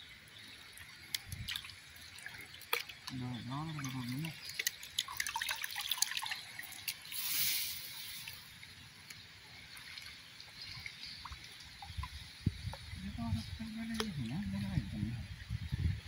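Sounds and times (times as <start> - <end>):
water splashing: 0.4 - 15.1
water dripping off net: 0.7 - 7.4.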